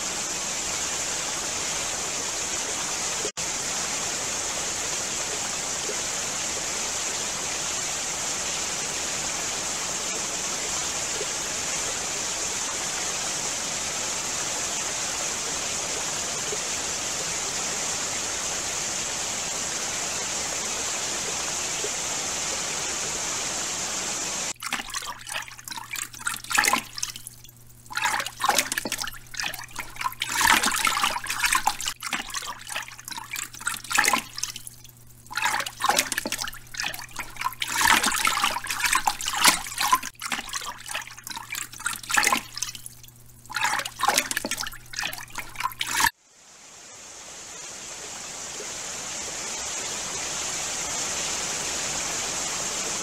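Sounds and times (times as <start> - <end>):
rushing flowing water: 0.0 - 53.0
otters splashing in water: 24.5 - 46.1.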